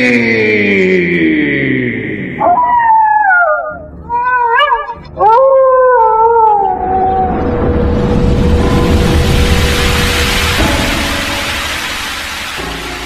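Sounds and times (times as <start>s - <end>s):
cat yowling: 2.4s - 7.4s
rain-like hiss: 7.8s - 13.0s.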